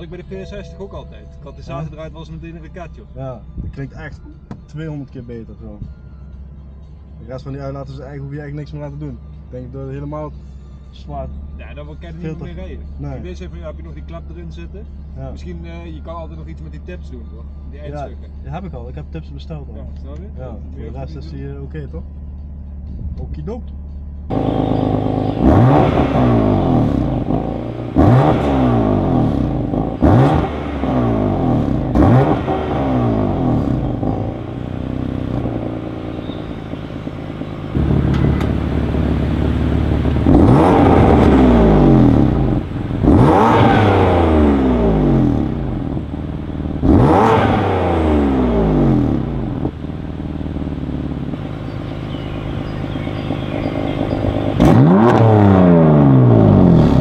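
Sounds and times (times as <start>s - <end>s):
car engine revving: 19.9s - 57.0s.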